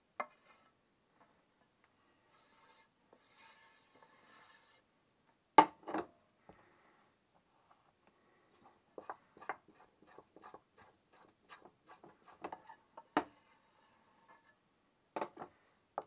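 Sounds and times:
spatula scraping a pot: 2.2 - 4.9, 8.5 - 14.6.

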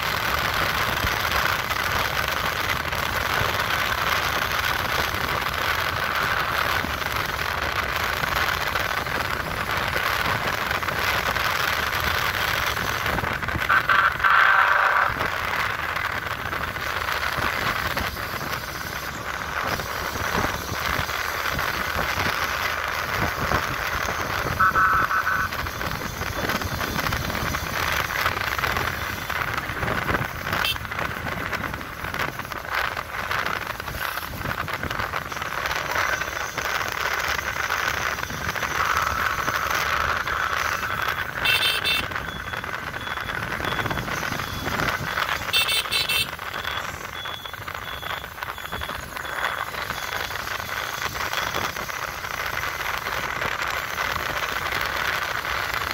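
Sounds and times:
motorcycle riding with wind noise: 0.0 - 55.9
short high beeps: 24.6 - 25.5, 41.0 - 50.1.

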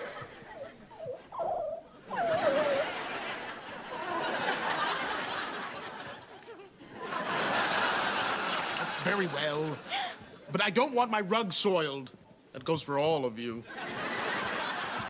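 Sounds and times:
studio audience laughing: 0.0 - 1.0, 2.1 - 10.4, 13.7 - 15.0.

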